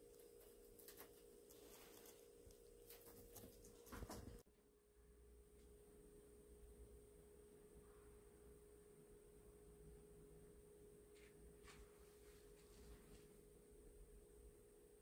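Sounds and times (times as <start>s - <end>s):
faint steady tone: 4.4s - 15.0s.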